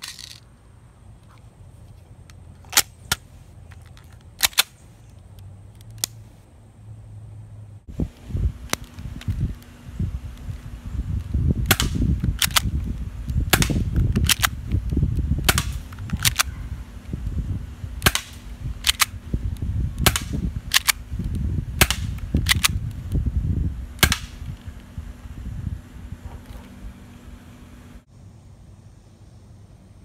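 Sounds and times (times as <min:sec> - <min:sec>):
low rumble: 0:06.7 - 0:30.0
airsoft pistol shots: 0:11.7 - 0:12.6, 0:13.5 - 0:14.5, 0:15.4 - 0:16.5, 0:18.0 - 0:19.1, 0:20.0 - 0:21.0, 0:21.8 - 0:22.8, 0:24.0 - 0:24.4.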